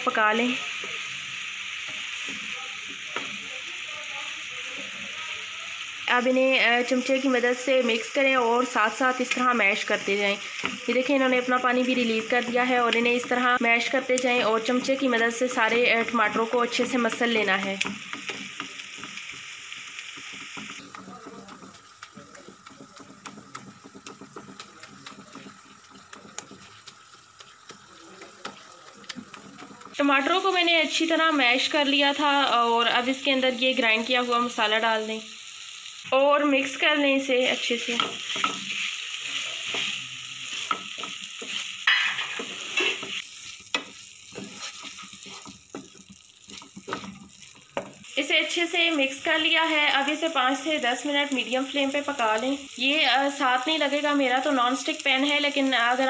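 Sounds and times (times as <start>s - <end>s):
tomatoes sizzling in oil: 0.0s - 56.0s
spatula scraping a pan: 14.7s - 30.0s, 37.9s - 48.0s.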